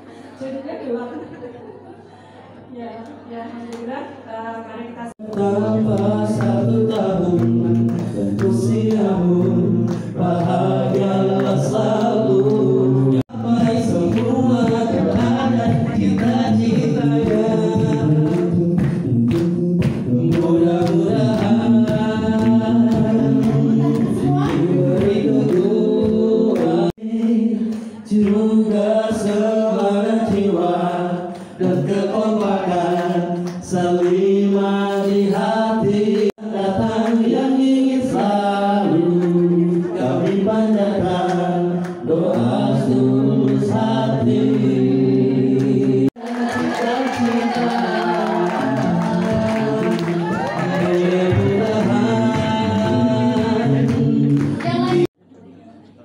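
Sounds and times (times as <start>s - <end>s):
male a cappella group singing: 5.1s - 55.2s.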